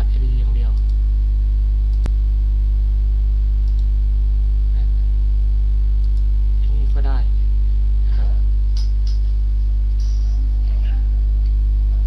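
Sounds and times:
electrical mains hum: 0:00.0 - 0:12.0
sharp click: 0:03.6 - 0:03.9.

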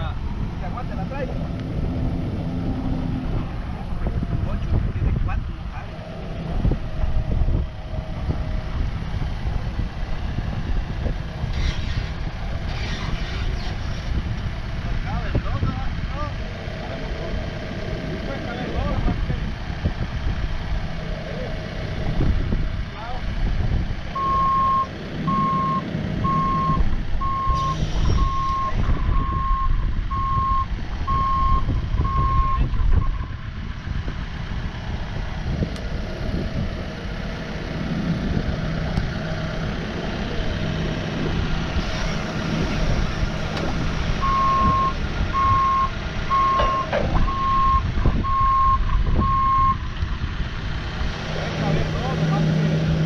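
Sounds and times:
forklift engine running: 0:00.0 - 0:53.0
reverse alarm beeping: 0:24.2 - 0:33.3, 0:44.2 - 0:49.9.

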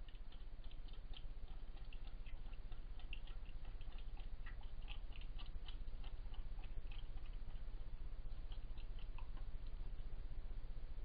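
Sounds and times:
animals crunching food: 0:00.0 - 0:10.1
steady low hum: 0:00.0 - 0:11.0.

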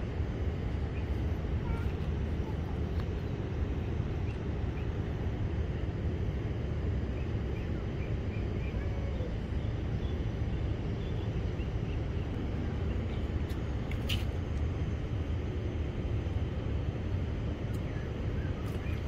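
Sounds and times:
low outdoor rumble: 0:00.0 - 0:19.0
faint bird chirps: 0:07.1 - 0:13.3.

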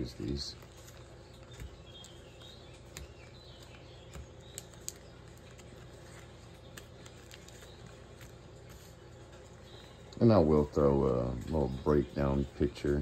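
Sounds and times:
metal cards in plastic sleeves crinkling: 0:00.0 - 0:10.0
faint steady hum: 0:00.0 - 0:13.0.

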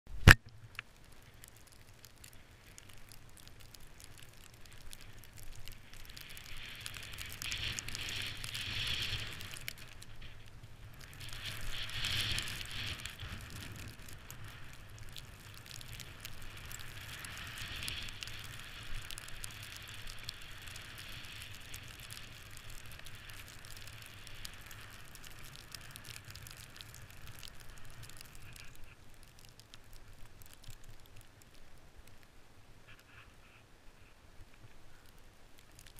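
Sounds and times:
wind rumble on microphone: 0:03.6 - 0:28.9.

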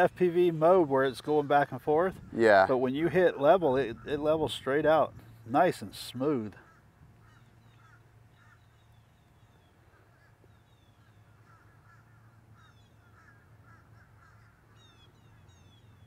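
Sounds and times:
low steady hum: 0:00.0 - 0:16.0
faint bird calls and chirps: 0:06.5 - 0:16.0.

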